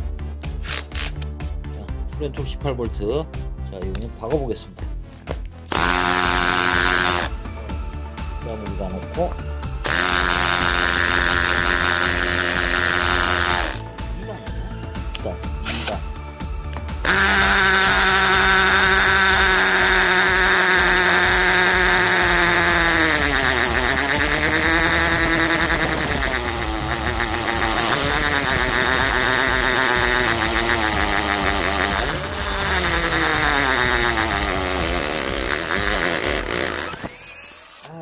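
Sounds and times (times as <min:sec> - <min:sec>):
hammer drill drilling into concrete: 0:00.5 - 0:01.2, 0:05.7 - 0:07.4, 0:09.7 - 0:13.9, 0:15.6 - 0:16.1, 0:17.0 - 0:38.0.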